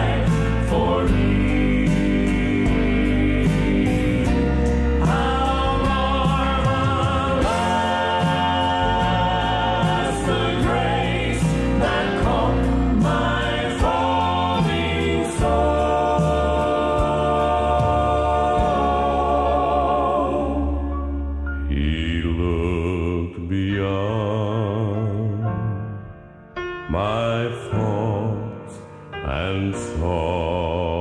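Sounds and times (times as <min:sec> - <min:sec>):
instrumental backing: 0:00.0 - 0:21.9
group singing a hymn: 0:00.0 - 0:25.3.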